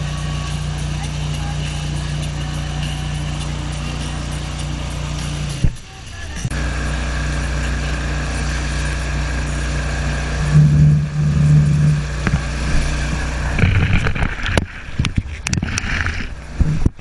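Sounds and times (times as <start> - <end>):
spray splashing on camera: 0.0 - 14.9
motorboat engine droning: 0.0 - 17.0
rushing whitewater wake: 0.0 - 17.0
wind on microphone: 10.1 - 17.0.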